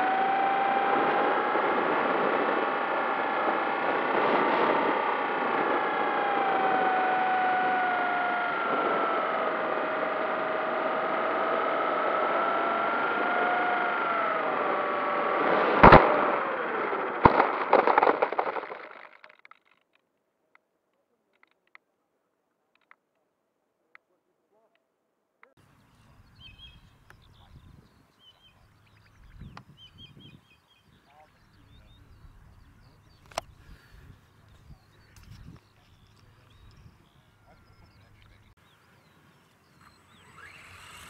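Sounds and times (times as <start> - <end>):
model plane whine: 0.0 - 18.9, 28.6 - 41.0
plane thudding down: 0.0 - 19.1.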